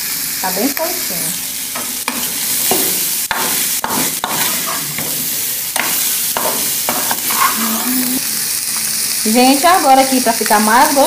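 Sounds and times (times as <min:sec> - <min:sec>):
food sizzling in a frying pan: 0:00.0 - 0:11.0
metal spoon scraping a pan: 0:01.8 - 0:08.2.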